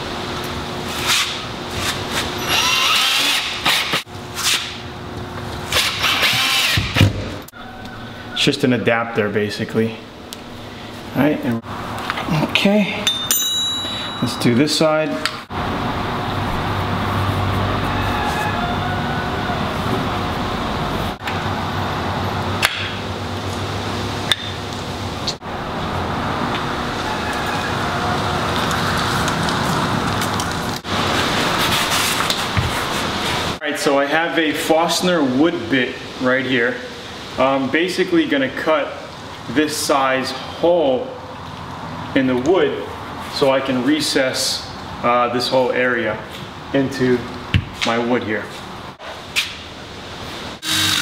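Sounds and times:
cordless drill motor whining: 2.4s - 3.6s, 50.6s - 51.0s.

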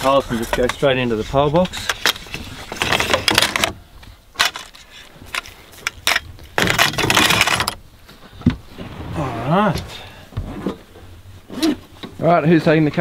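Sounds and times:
poles scraping sliding into box: 8.7s - 10.9s.

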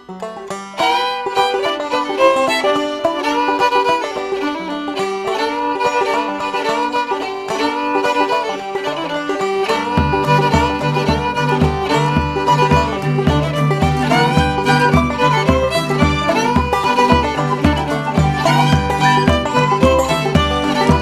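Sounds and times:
banjo picking: 0.0s - 21.0s
fiddle melody: 0.0s - 21.0s
bass: 9.9s - 21.0s.

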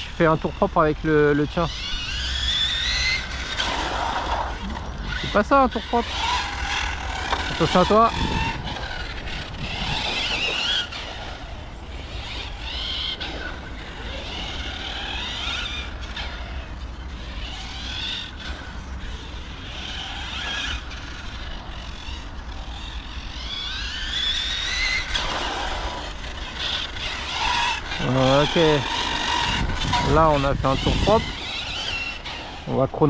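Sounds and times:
electric motor of toy truck whining: 0.0s - 33.0s.

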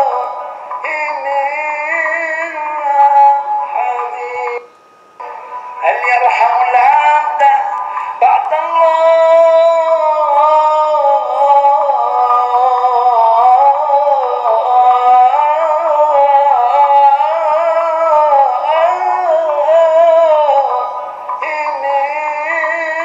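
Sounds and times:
man chanting: 5.7s - 23.0s.

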